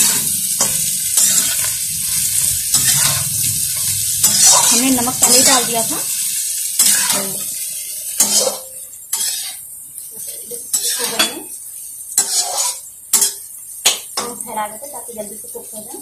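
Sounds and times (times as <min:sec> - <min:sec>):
metal ladle scraping pan: 0:00.0 - 0:06.2, 0:06.8 - 0:09.6, 0:10.7 - 0:11.5, 0:12.2 - 0:13.4
vegetables sizzling: 0:00.0 - 0:16.0.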